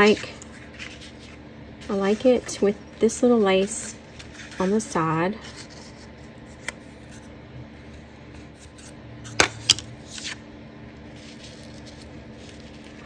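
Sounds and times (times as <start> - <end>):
papery rustle: 0.0 - 6.3, 11.0 - 13.0
faint steady hum: 0.0 - 13.0.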